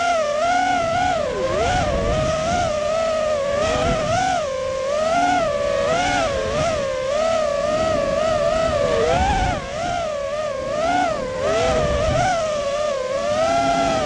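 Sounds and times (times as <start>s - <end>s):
quadcopter motors whining: 0.0s - 14.0s.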